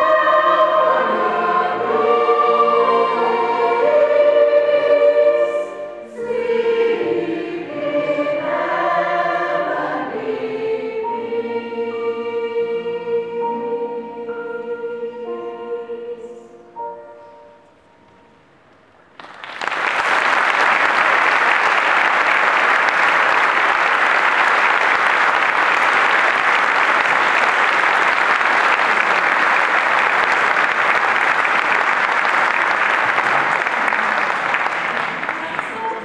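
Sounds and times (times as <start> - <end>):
audience applause: 19.2 - 36.0.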